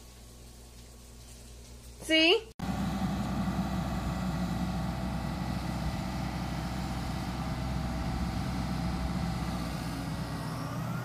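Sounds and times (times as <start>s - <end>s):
low engine hum: 2.6s - 11.0s.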